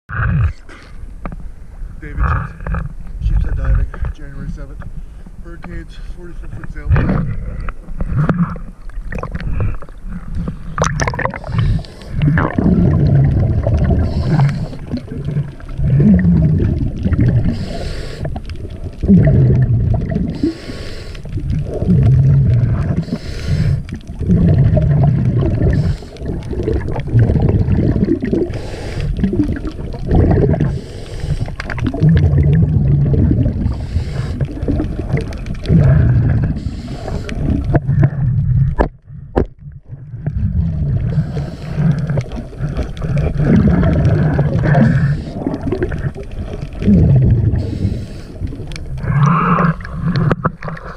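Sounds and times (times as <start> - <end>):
exhaled bubbles gurgling: 6.5 - 50.9
diver breathing through regulator: 9.4 - 27.7, 28.3 - 29.4, 30.1 - 31.8, 33.4 - 34.8, 35.6 - 39.4, 40.3 - 45.7, 47.4 - 50.9.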